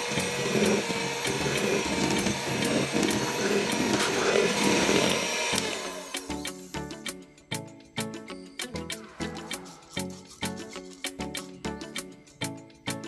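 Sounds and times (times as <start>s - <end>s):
electric hand mixer running: 0.0s - 7.0s.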